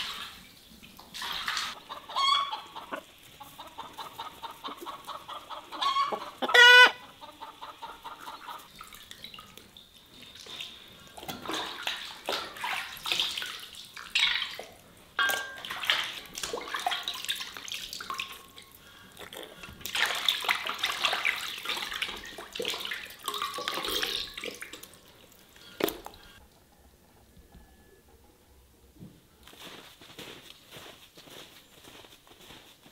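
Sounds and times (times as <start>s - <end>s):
hands splashing water in basin: 1.0s - 1.8s, 10.4s - 18.5s, 19.7s - 25.0s
fowl call: 2.0s - 3.0s, 3.9s - 7.0s.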